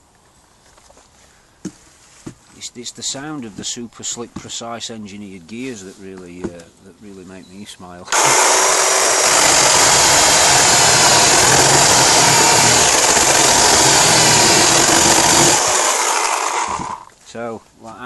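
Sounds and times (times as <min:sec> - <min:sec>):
chain rasping through wood: 0:08.1 - 0:17.1
electric chainsaw whining: 0:08.1 - 0:17.1.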